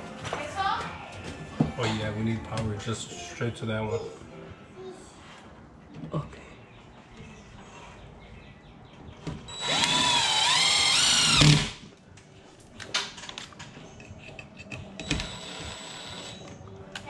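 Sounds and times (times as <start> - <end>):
cordless drill whining: 9.5 - 11.8, 15.0 - 16.4.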